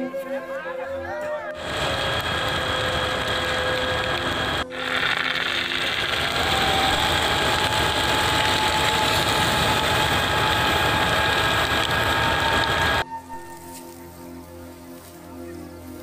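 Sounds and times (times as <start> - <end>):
dense rushing noise: 1.6 - 13.0
engine running with high whine: 1.6 - 13.0.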